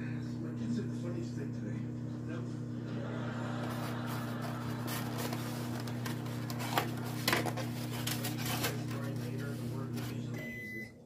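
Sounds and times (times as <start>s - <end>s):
microwave oven humming: 0.0s - 11.0s
plastic carton crackling: 3.7s - 10.2s.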